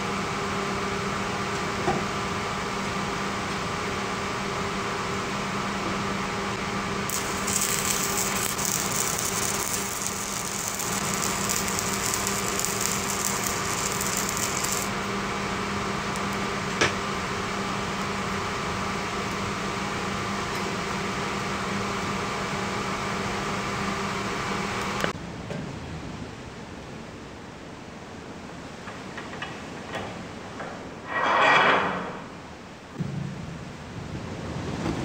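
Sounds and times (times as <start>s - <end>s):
machine hum with steady tones: 0.0s - 35.0s
arc welding crackling and sizzling: 6.9s - 22.1s.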